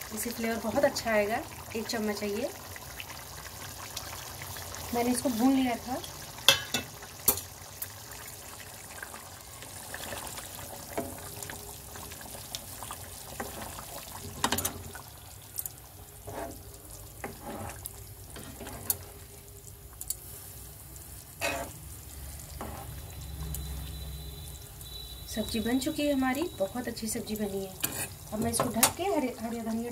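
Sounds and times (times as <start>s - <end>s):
thick gravy bubbling: 0.0s - 29.9s
metal ladle scraping pan: 16.2s - 16.6s, 17.2s - 19.1s, 21.4s - 21.8s, 22.6s - 23.0s, 27.8s - 29.0s.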